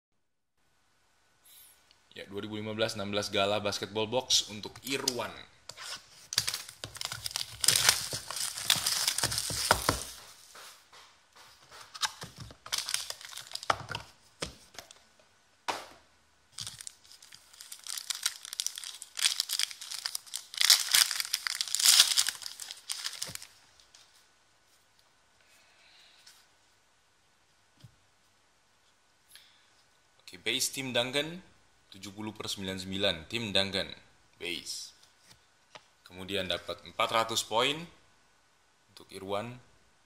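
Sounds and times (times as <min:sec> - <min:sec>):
packaging crinkling and tearing: 0:06.2 - 0:10.3, 0:11.9 - 0:14.1, 0:16.6 - 0:23.6.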